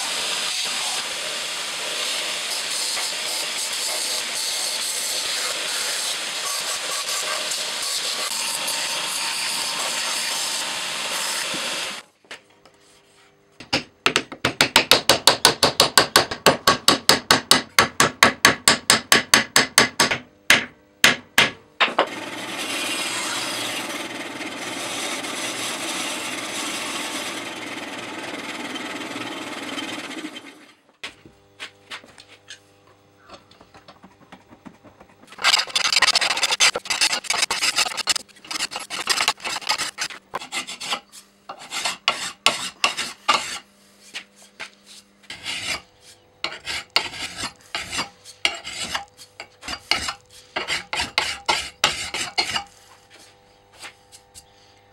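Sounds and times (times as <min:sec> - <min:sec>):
bandsaw cutting wood: 0:00.0 - 0:12.0, 0:22.0 - 0:30.8, 0:35.4 - 0:41.0
belt grinder shaping wood: 0:22.1 - 0:30.6, 0:35.3 - 0:40.9
hand file scraping steel: 0:35.4 - 0:54.3.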